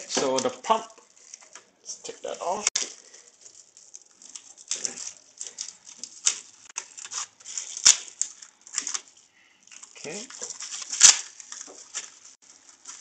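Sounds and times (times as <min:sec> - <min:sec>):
bubble wrap crinkling: 0:00.0 - 0:13.0.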